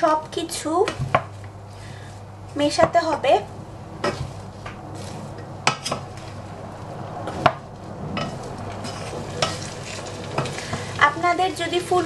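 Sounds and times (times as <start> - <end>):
spatula stirring vegetables in saucepan: 8.2 - 12.0.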